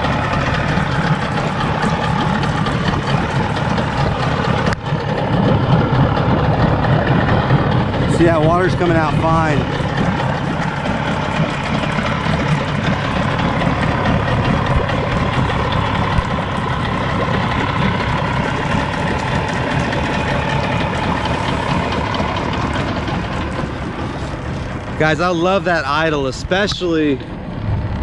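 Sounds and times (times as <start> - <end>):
outboard motor idling: 0.0 - 28.0.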